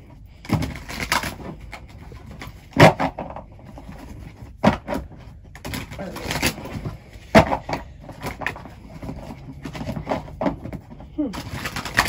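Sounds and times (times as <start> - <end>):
handling noises: 0.0 - 12.0.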